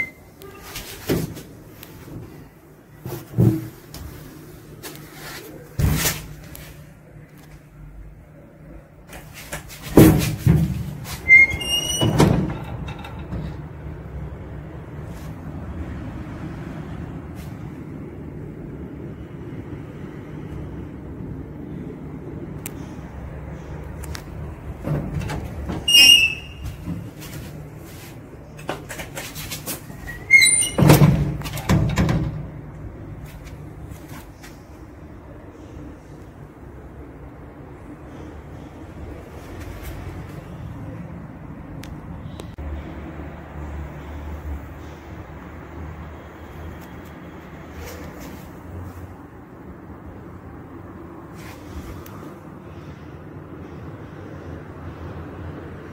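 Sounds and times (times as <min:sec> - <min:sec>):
lift doors knocking and thudding: 0:09.6 - 0:14.2, 0:24.4 - 0:27.8, 0:28.6 - 0:32.8.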